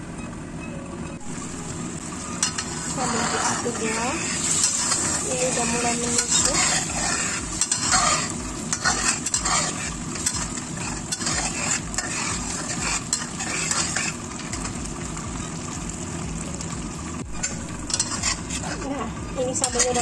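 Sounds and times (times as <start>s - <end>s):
sauce sizzling and bubbling: 1.2s - 20.0s
metal spatula scraping a wok: 2.3s - 14.8s, 17.4s - 20.0s.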